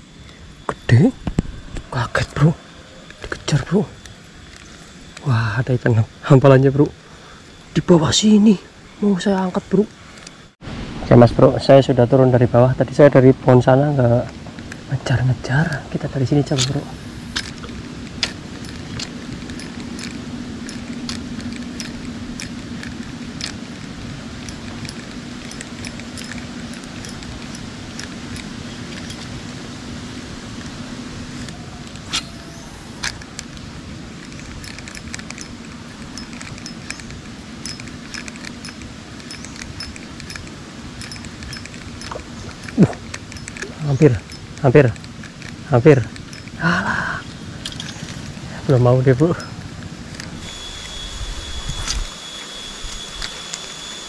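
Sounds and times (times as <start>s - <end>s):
fishing reel whirring and clicking: 16.3s - 29.4s, 31.3s - 54.0s.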